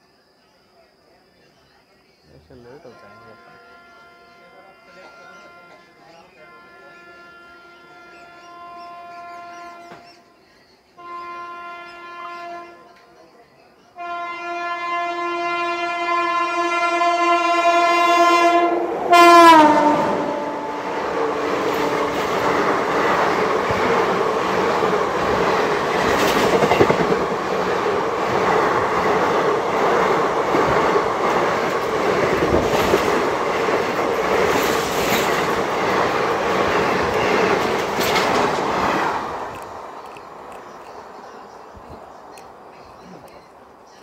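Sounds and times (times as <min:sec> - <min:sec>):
train horn blast: 0:02.7 - 0:10.3, 0:11.0 - 0:13.2, 0:14.0 - 0:39.7
train coaches rushing past: 0:15.4 - 0:43.9
wheels clacking over rail joints: 0:21.2 - 0:41.6.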